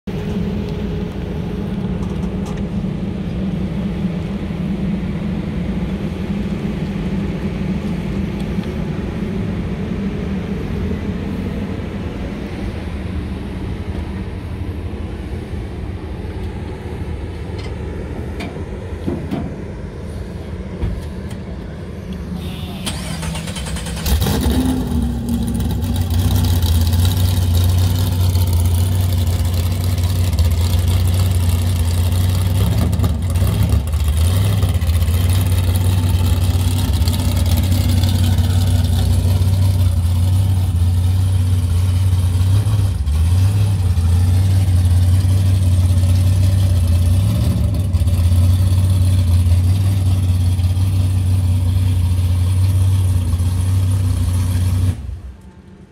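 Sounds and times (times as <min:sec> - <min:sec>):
vehicle engine humming: 0:00.0 - 0:55.9
engine starting and idling: 0:22.4 - 0:41.1.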